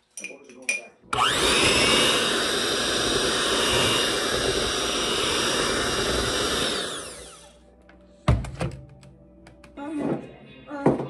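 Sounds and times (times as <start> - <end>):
electric mixer whirring: 1.1 - 7.6.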